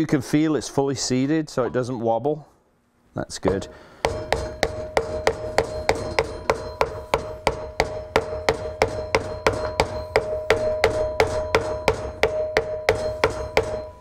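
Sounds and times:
hammer tapping wooden board: 3.4 - 14.0
steady ringing tone: 3.5 - 14.0.

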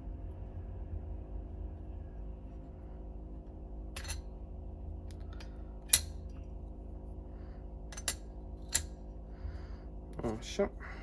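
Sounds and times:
low steady hum: 0.0 - 11.0
metal clutch plates clinking: 4.0 - 4.2.

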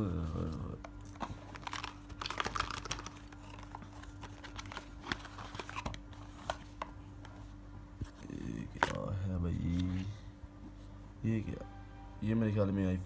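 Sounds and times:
packaging clicks taps and crinkles: 0.8 - 7.3.

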